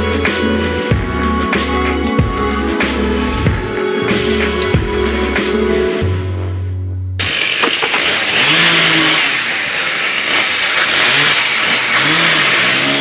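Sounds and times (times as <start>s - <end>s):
chainsaws cutting: 7.2s - 13.0s.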